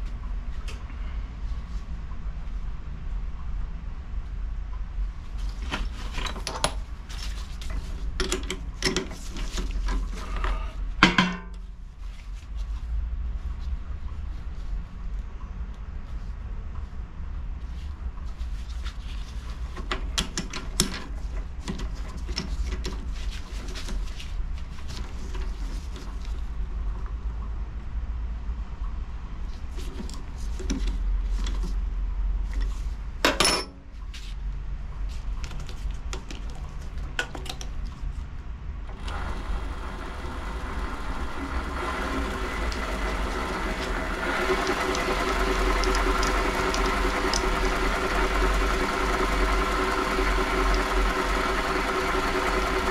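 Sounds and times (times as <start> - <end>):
lathe motor humming: 38.9 - 52.9
clicks and knocks of lathe chuck: 44.2 - 47.9.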